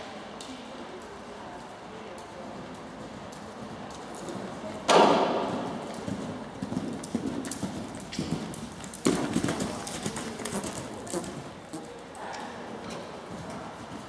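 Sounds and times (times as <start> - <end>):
horse hooves thudding on sand: 3.4 - 12.0.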